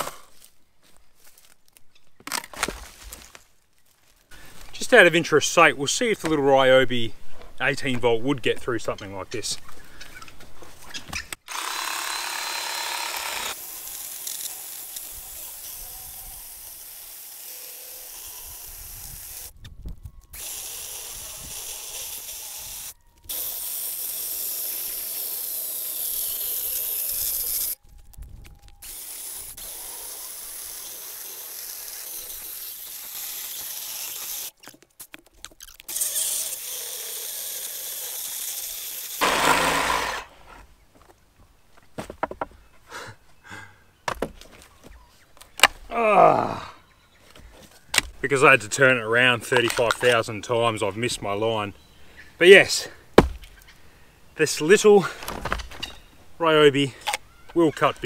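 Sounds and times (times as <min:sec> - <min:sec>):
chainsaw motor whining: 0:11.4 - 0:19.5, 0:20.3 - 0:27.8, 0:28.8 - 0:34.6, 0:35.9 - 0:40.6
chain tearing through wood: 0:28.7 - 0:40.3.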